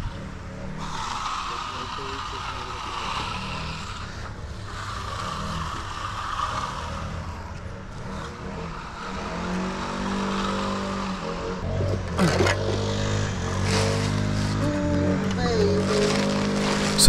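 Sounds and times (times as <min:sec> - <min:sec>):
trowel scraping concrete: 0:00.0 - 0:17.0.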